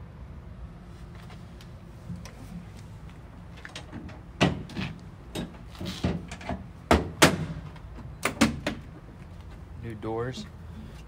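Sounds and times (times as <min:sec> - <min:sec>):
metal locker door clunks: 0:03.9 - 0:08.8.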